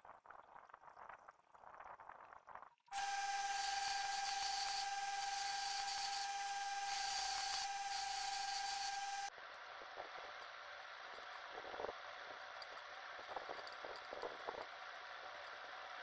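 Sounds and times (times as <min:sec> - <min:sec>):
belt grinder whining: 0:02.9 - 0:09.3
steel grinding hiss: 0:03.0 - 0:09.3.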